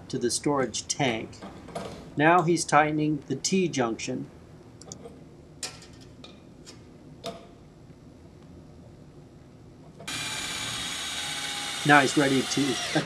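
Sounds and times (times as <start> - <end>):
loud steady mechanical noise: 10.0 - 13.0.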